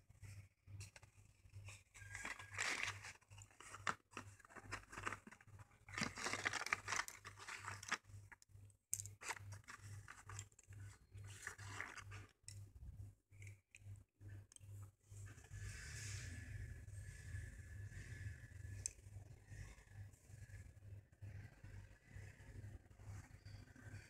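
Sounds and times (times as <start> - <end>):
cardboard tearing and crinkling: 2.0 - 8.0, 11.3 - 12.2.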